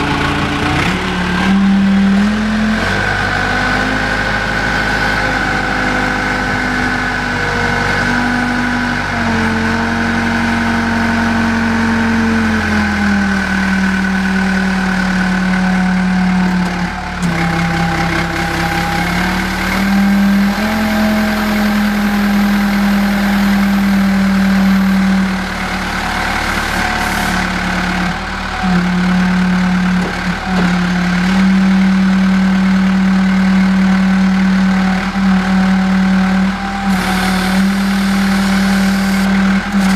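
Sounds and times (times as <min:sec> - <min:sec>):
forklift engine revving: 0:00.0 - 0:39.9.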